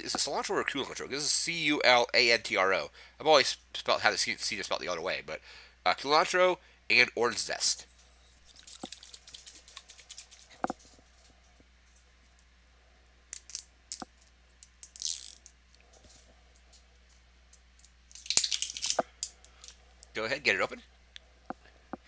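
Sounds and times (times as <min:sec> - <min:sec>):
crinkly rustle: 0:07.9 - 0:12.1.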